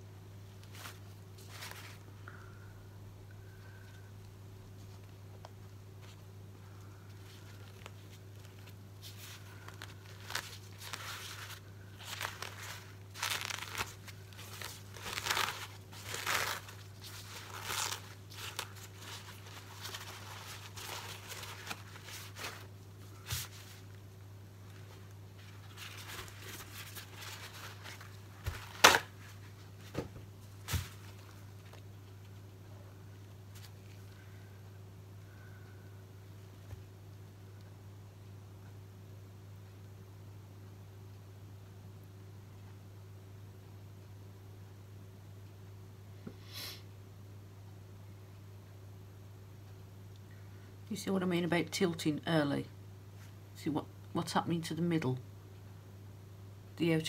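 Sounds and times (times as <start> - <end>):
paper towels rustling and crinkling: 0.6 - 2.1, 6.0 - 32.5.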